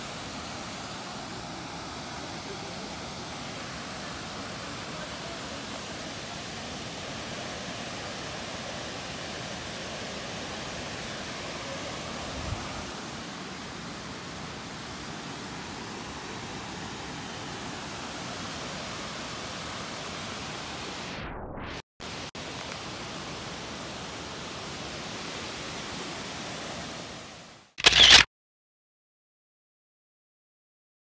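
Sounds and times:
waterfall rushing: 0.0 - 21.1.

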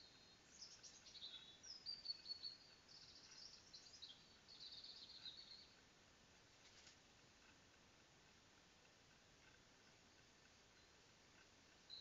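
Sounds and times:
songbird singing whistles and trills: 0.0 - 5.8.

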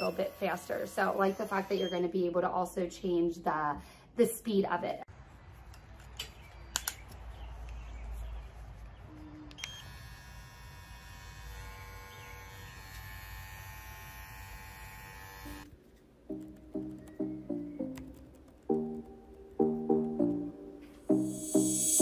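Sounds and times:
electric clipper buzzing: 0.0 - 2.0, 9.6 - 15.7.

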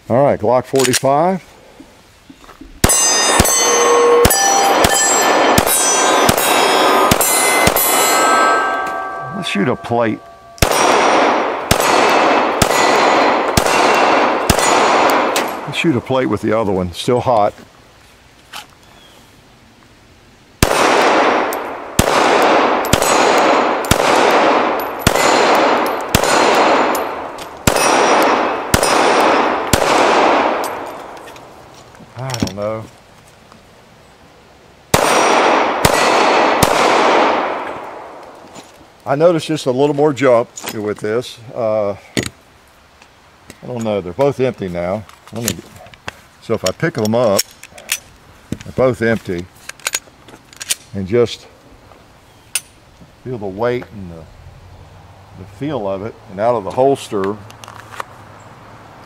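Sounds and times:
pistol shots: 2.8 - 9.9, 10.5 - 15.9, 20.6 - 31.2, 34.9 - 38.4
steel target plates ringing: 2.8 - 11.4, 24.6 - 29.6.

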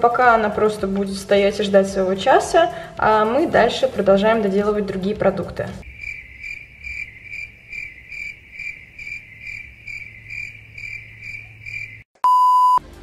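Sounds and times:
loud steady beep: 12.2 - 12.8.

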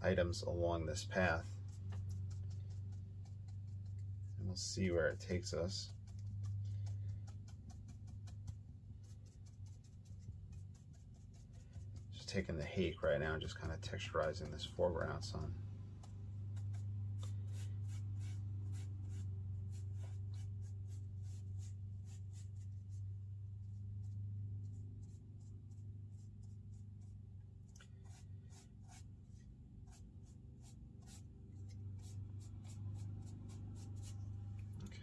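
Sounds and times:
steady low hum: 0.0 - 35.0
brush tapping on paper: 1.6 - 4.3, 5.9 - 12.2, 16.0 - 18.0.

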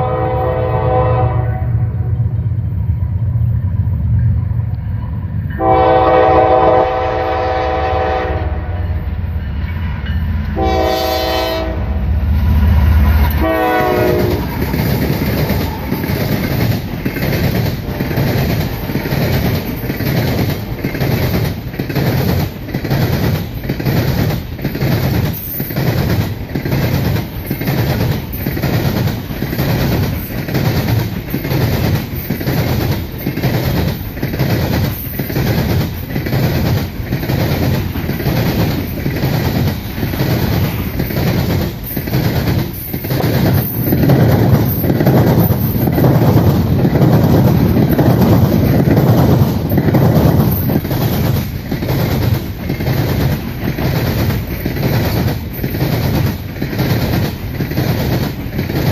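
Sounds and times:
train wheels clicking over rail joints: 12.3 - 58.9.

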